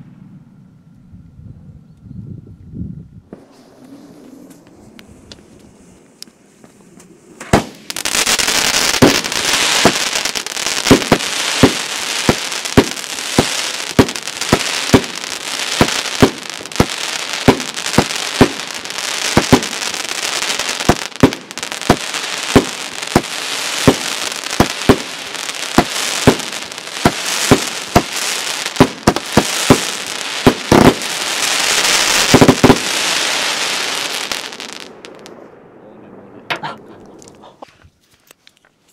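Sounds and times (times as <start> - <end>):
firework hissing: 7.0 - 35.2
firework shots: 7.0 - 37.6.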